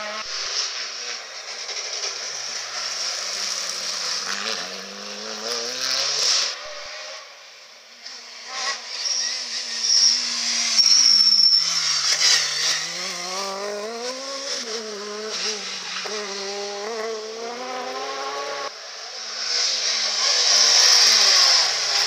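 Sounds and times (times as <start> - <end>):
rally car engine revving: 0.0 - 7.4, 8.0 - 22.0
tyre squeal: 8.6 - 13.3.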